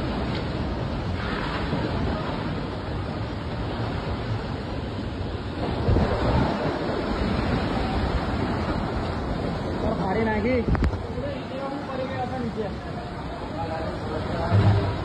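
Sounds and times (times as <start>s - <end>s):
wind buffeting microphone: 0.0s - 11.4s
heavy rain pouring: 0.0s - 15.0s.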